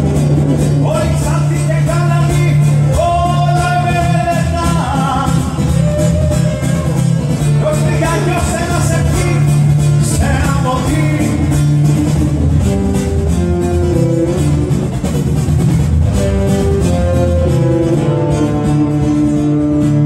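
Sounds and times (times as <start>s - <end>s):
acoustic guitars playing: 0.0s - 20.0s
man singing: 0.6s - 12.2s.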